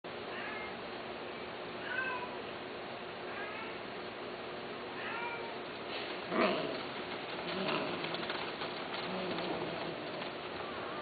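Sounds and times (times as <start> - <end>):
cat meowing: 1.8 - 2.4, 5.0 - 5.6.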